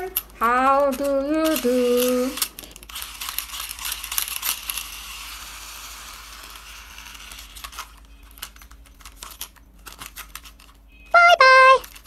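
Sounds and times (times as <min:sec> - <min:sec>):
plastic clicks and rattles: 0:07.2 - 0:10.8.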